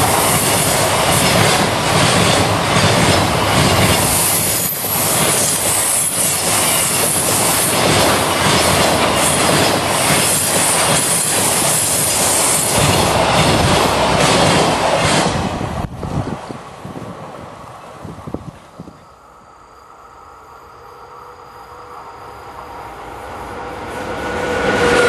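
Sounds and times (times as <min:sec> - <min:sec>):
wheels clacking over rail joints: 0:00.0 - 0:15.6
train wheel and rail noise: 0:00.0 - 0:25.0.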